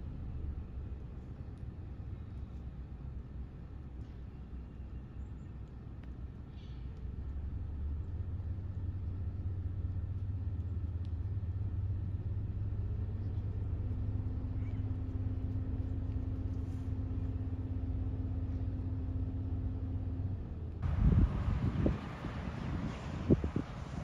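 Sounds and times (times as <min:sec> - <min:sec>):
vehicle engine rumble: 0:00.0 - 0:24.0
rising hum: 0:07.2 - 0:24.0.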